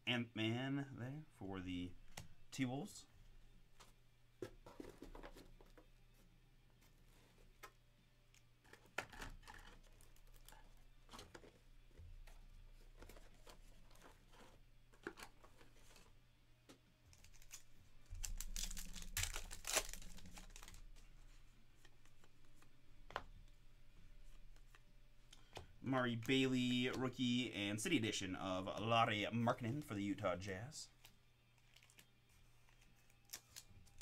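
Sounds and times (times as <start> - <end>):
wrapper tearing and crinkling: 17.1 - 20.9.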